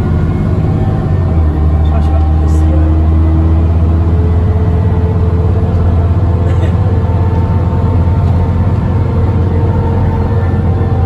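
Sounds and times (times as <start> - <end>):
bus diesel engine droning: 0.0 - 11.0.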